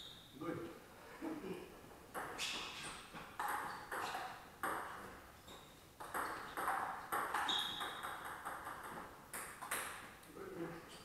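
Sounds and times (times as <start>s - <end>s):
table tennis ball pocks: 6.0s - 10.0s.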